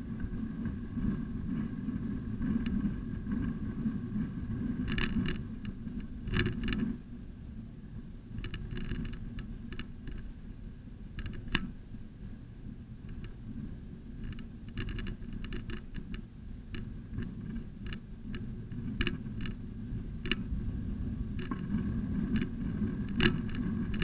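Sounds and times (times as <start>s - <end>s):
moving bicycle rumble: 0.0s - 24.0s
bicycle clicks and rattles: 4.8s - 7.0s, 8.3s - 10.3s, 11.2s - 11.8s, 14.1s - 20.5s, 21.3s - 24.0s.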